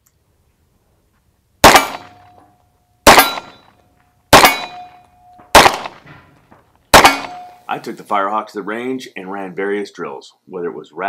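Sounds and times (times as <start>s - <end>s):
pistol shots: 1.6s - 2.3s, 3.0s - 3.6s, 4.3s - 6.1s, 6.9s - 7.6s.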